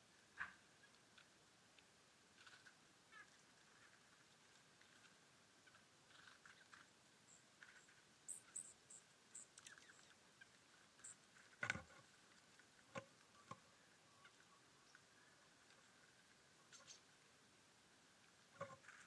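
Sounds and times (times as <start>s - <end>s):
small birds chirping: 2.3s - 11.7s, 12.9s - 17.3s.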